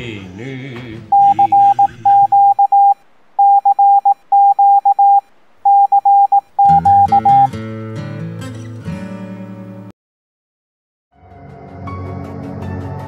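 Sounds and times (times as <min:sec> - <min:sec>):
emergency alert beeps: 0:01.1 - 0:07.5
tv programme sound: 0:01.1 - 0:07.5
strummed guitar music: 0:06.7 - 0:09.9.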